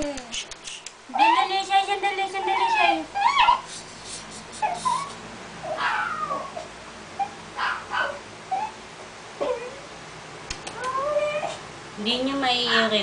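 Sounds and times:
dog whimpering: 0:01.1 - 0:01.6, 0:02.3 - 0:03.8, 0:04.6 - 0:08.8, 0:09.4 - 0:09.9, 0:10.7 - 0:11.6.

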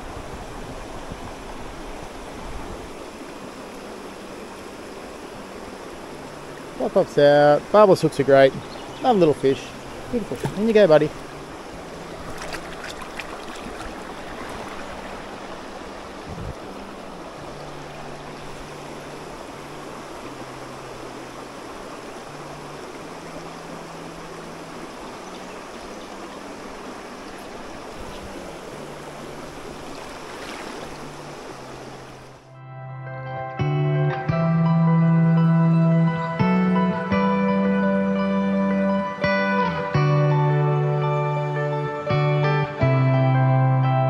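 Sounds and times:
creek flowing: 0:00.0 - 0:32.6.

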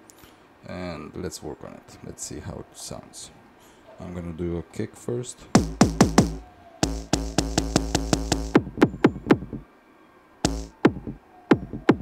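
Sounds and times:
electronic kick drum hits: 0:05.6 - 0:09.6, 0:10.4 - 0:12.0.

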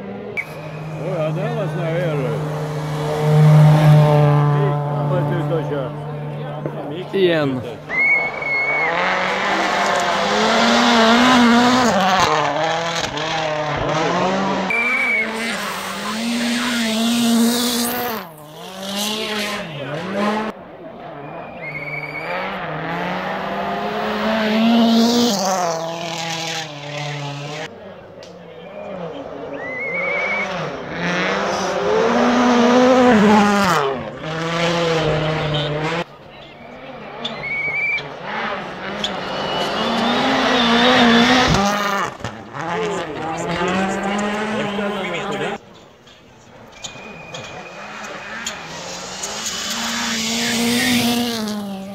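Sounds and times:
rally car engine at high revs: 0:00.0 - 0:45.7, 0:46.4 - 0:51.9
short trilling whistle: 0:00.4 - 0:01.0, 0:07.9 - 0:09.0, 0:14.7 - 0:15.5, 0:21.2 - 0:22.4, 0:29.6 - 0:30.4, 0:36.5 - 0:38.1, 0:39.0 - 0:41.4, 0:46.7 - 0:48.7.

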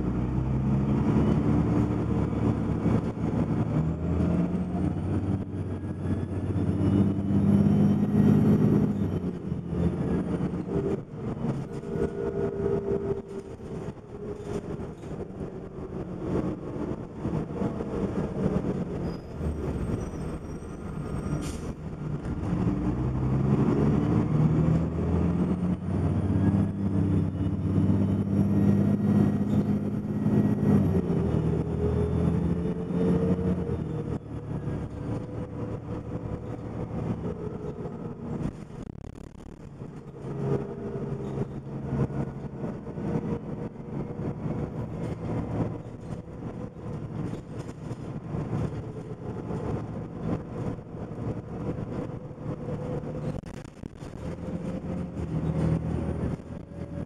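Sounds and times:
bus diesel engine: 0:00.0 - 0:57.0.

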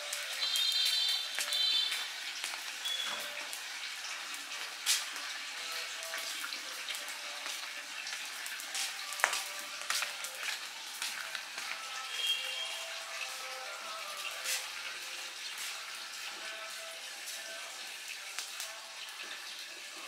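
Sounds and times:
fire hissing and crackling: 0:00.0 - 0:20.0.

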